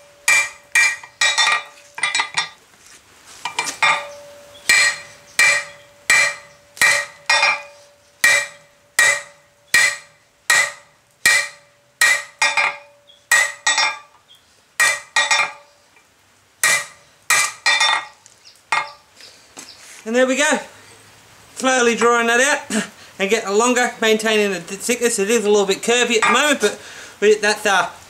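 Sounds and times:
hammer striking steel on anvil: 0:00.0 - 0:02.6, 0:03.5 - 0:14.2, 0:14.8 - 0:15.7, 0:16.6 - 0:19.0, 0:26.2 - 0:26.5.

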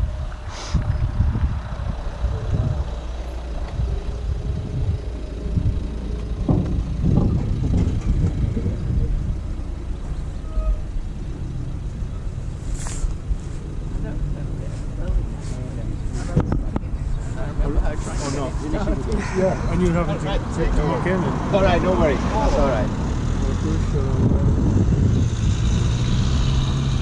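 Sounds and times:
wind rumble on microphone: 0:00.0 - 0:14.1, 0:22.2 - 0:27.0
car rolling past: 0:00.0 - 0:27.0.

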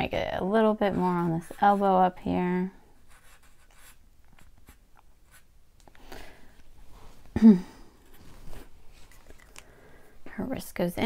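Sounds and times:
marker scratching on paper: 0:01.0 - 0:02.1, 0:03.1 - 0:05.5.

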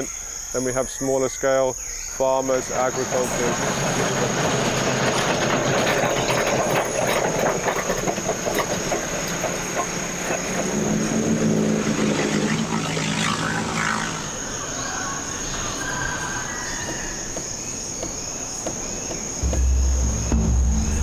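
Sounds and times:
machinery clattering and rattling: 0:02.5 - 0:13.9, 0:18.1 - 0:21.0
engine low drone: 0:02.6 - 0:15.0, 0:19.3 - 0:21.0.

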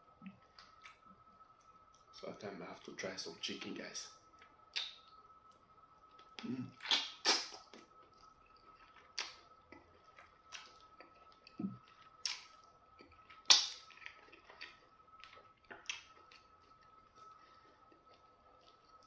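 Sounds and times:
wet mouth smacks from chewing: 0:06.3 - 0:07.9, 0:10.5 - 0:16.5.

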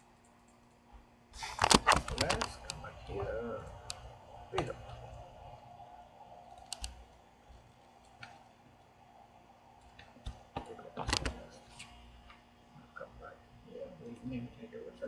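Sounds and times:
faint steady hum: 0:00.0 - 0:15.0
computer mouse clicks: 0:06.5 - 0:07.2.

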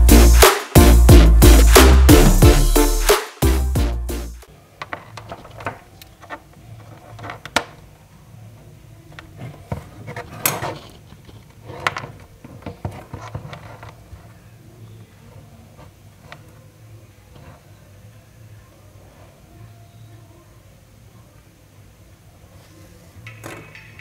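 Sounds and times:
cable and phone handling noise: 0:04.8 - 0:07.9, 0:09.1 - 0:14.4.

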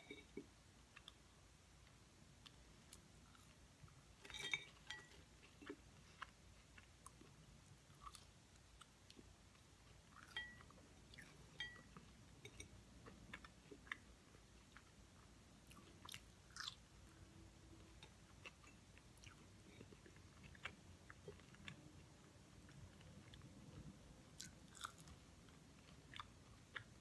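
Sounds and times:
chewing fries: 0:00.2 - 0:27.0
small clicks and clinks: 0:04.2 - 0:05.2.

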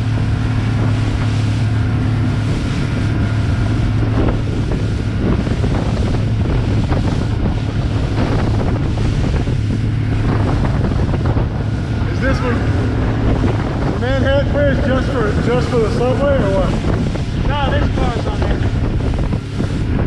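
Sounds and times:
boat engine droning: 0:00.0 - 0:20.0
water rushing past hull: 0:00.0 - 0:20.0
wind buffeting microphone: 0:00.0 - 0:20.0.

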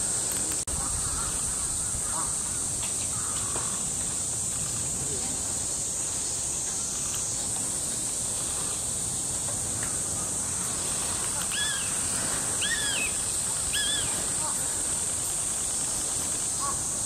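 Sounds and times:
steady high hiss: 0:00.0 - 0:17.0
bird calls: 0:09.9 - 0:17.0.

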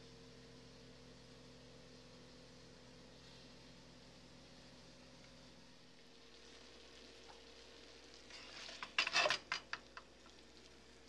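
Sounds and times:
burger patties sizzling: 0:02.4 - 0:11.0.

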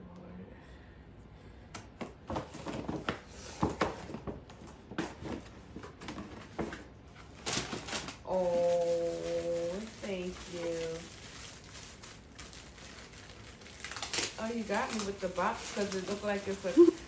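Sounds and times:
wrapping paper crinkling and tearing: 0:07.2 - 0:17.0.

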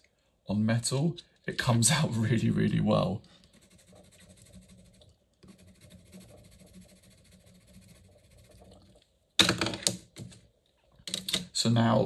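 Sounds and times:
pencil scribbling on paper: 0:03.4 - 0:08.7.

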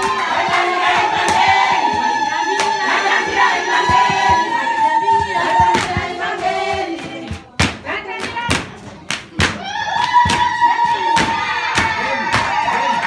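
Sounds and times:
women singing in chorus: 0:00.0 - 0:08.4.

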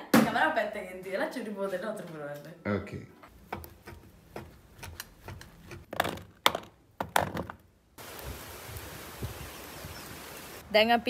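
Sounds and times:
plastic containers knocking and clicking: 0:05.7 - 0:07.7
steady outdoor hiss: 0:07.8 - 0:11.0.

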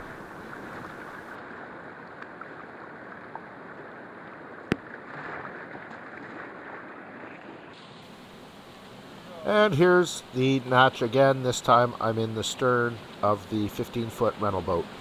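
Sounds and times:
rushing whitewater: 0:07.7 - 0:15.0.

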